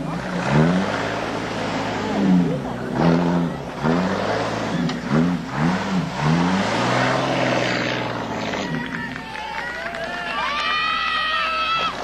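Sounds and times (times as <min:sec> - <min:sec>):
car engine revving: 0:00.0 - 0:09.3.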